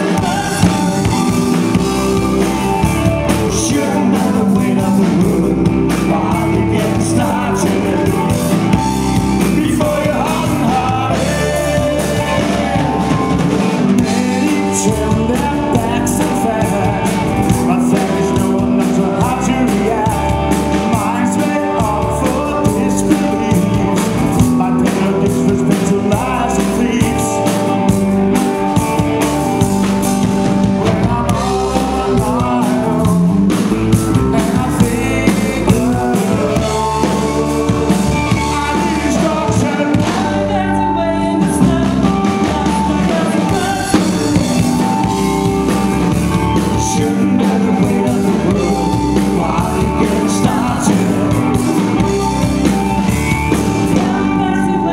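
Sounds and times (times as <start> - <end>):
bass guitar: 0.0 - 54.9
drum kit: 0.0 - 54.9
electric guitar: 0.0 - 54.9
man singing: 0.0 - 54.9.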